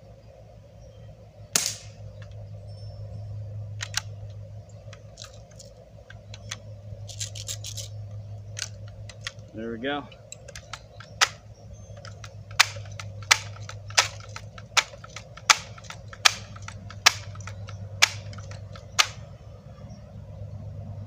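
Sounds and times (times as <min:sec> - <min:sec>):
sharp metallic rifle clicks: 0:01.6 - 0:02.4, 0:03.7 - 0:19.3.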